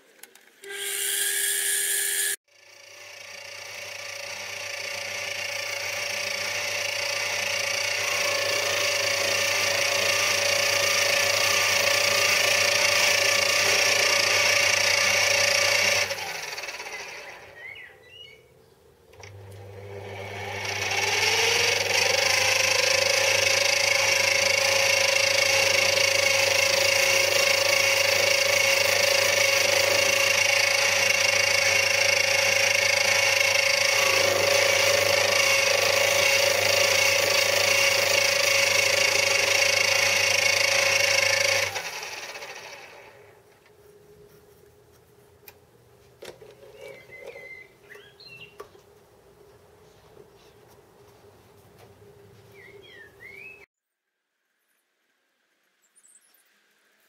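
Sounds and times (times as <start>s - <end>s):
metal lathe motor whining: 0.6s - 17.6s, 19.2s - 43.2s.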